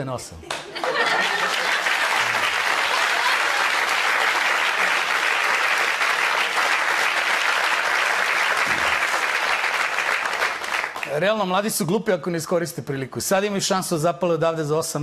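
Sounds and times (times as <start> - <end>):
audience applauding: 0.5 - 11.5.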